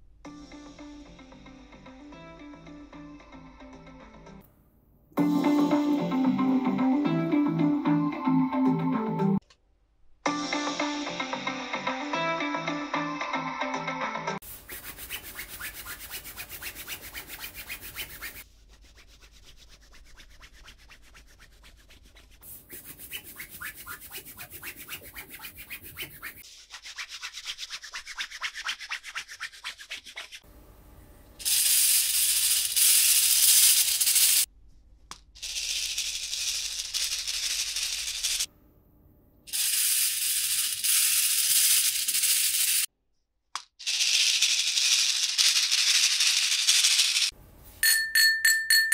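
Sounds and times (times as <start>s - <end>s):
fast fine rubbing and scratching: 14.4s - 30.4s.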